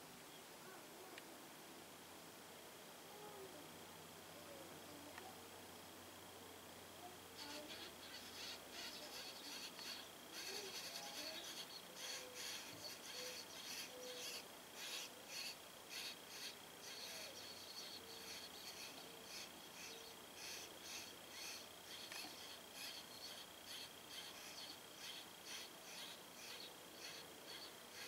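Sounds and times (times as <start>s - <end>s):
faint high whine: 0.0s - 28.0s
baby birds begging chirps: 7.4s - 28.0s.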